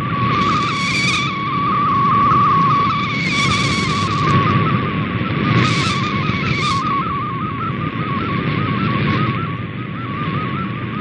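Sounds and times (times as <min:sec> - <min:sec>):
radio static hiss: 0:00.0 - 0:07.1
warbling radio tone: 0:00.0 - 0:08.0.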